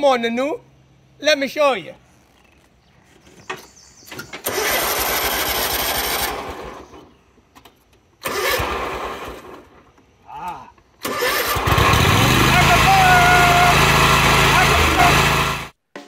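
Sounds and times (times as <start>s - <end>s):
mower engine cranking: 3.5s - 10.1s, 10.8s - 15.8s.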